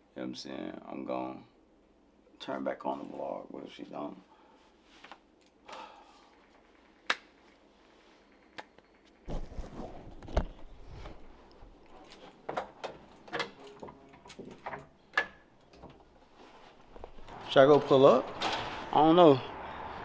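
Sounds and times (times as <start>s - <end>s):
rustling: 6.2s - 15.0s, 15.6s - 19.0s.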